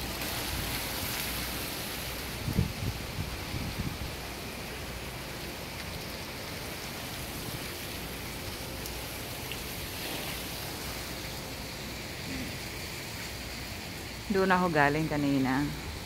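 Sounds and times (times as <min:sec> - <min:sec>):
wind rushing on microphone: 0:02.2 - 0:04.4.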